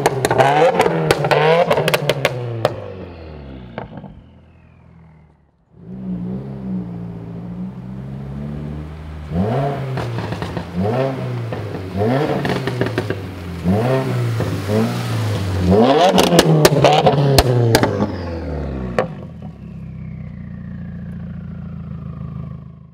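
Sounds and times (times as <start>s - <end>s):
car engine idling and revving: 0.0s - 22.9s
faint whine falling in pitch: 3.0s - 5.7s.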